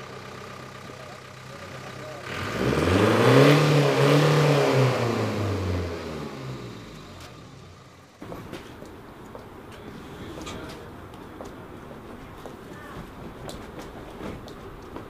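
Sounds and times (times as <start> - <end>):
van engine revving: 0.0 - 8.8.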